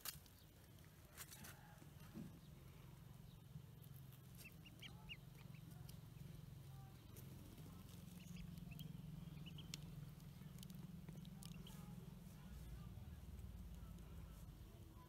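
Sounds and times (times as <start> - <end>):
low steady hum: 0.0 - 15.0
ducklings peeping: 3.2 - 12.1.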